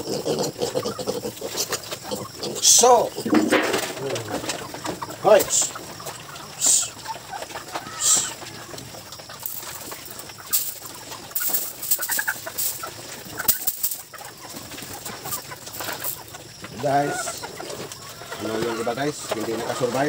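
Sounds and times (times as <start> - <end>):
hens clucking: 0.0 - 20.0
piglets eating feed crunching: 0.0 - 20.0
feed rattling from bucket: 2.6 - 5.8, 8.0 - 20.0.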